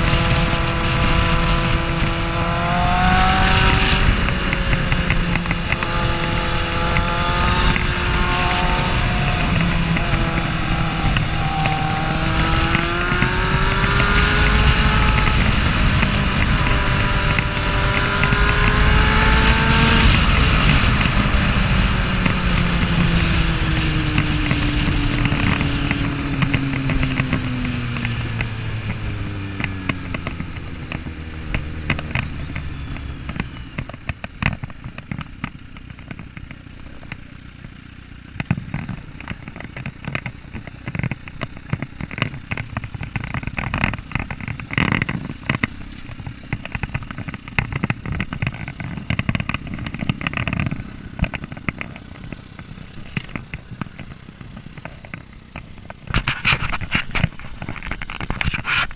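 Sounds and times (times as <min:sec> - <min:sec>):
wind buffeting microphone: 0:00.0 - 0:35.0
motorcycle engine slowing: 0:00.0 - 0:58.9
camera handling scraping: 0:56.0 - 0:58.9.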